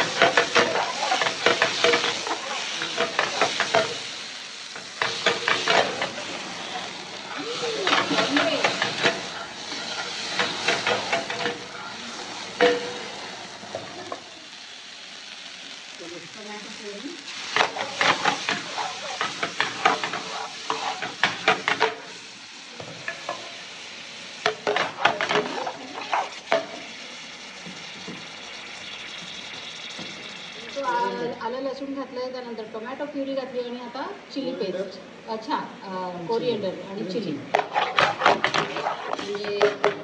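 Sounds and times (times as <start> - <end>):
metal ladle scraping wok: 0.0 - 4.1, 4.8 - 14.4, 17.3 - 22.0, 37.5 - 40.0
food sizzling: 0.0 - 40.0.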